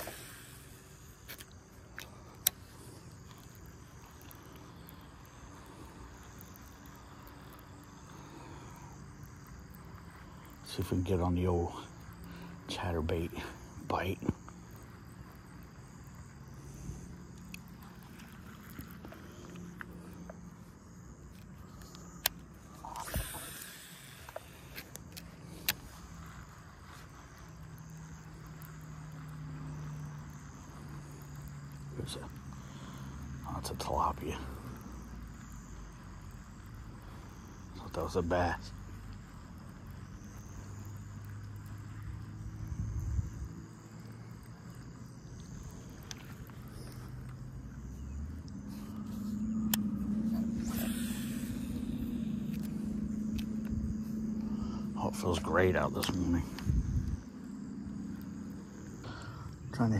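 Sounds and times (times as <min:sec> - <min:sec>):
insects chirring: 0:00.0 - 0:59.9
fishing reel whirring: 0:49.2 - 0:53.5.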